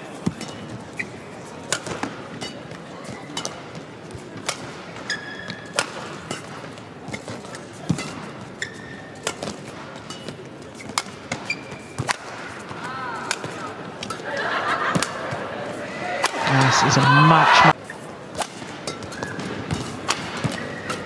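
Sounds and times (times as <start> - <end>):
shoes squeaking on court: 0.1 - 1.7, 2.3 - 14.2, 18.9 - 21.0
rackets striking shuttlecock: 1.7 - 3.8, 4.4 - 8.4, 9.2 - 14.2, 16.2 - 16.7, 18.3 - 21.0
crowd murmur: 12.7 - 17.8.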